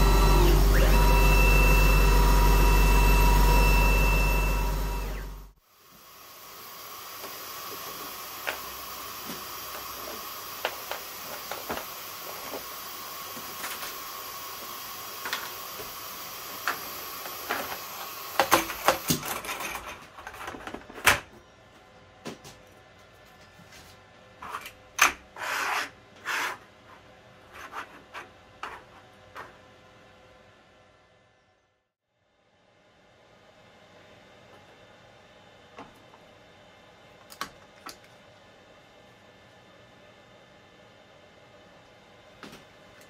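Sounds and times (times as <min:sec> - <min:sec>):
machine hum with whine: 0:00.0 - 0:19.0.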